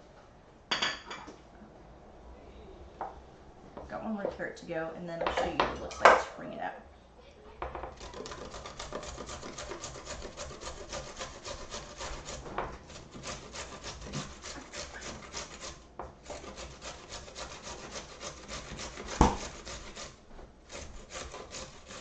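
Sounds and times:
carrot rasping on metal grater: 8.0 - 22.0.

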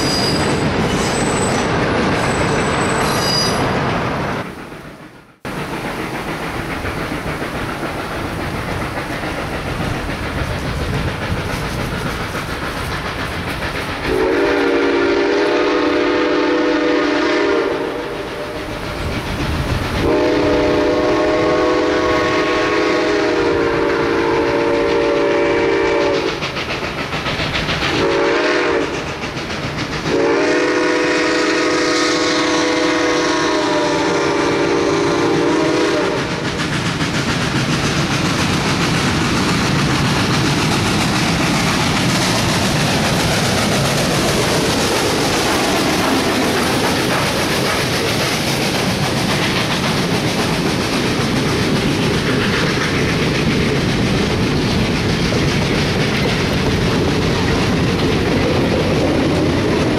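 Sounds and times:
steam locomotive chime whistle: 0.0 - 1.7, 2.3 - 3.7, 14.1 - 18.7, 20.0 - 26.4, 28.0 - 29.0, 30.1 - 36.4
train running noise: 0.0 - 59.9.

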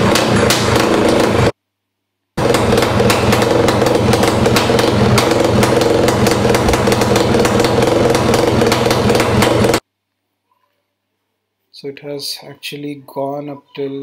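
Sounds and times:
exhaust crackle: 0.0 - 1.5, 2.4 - 9.8
two-stroke engine running loudly: 0.0 - 1.5, 2.4 - 9.8.

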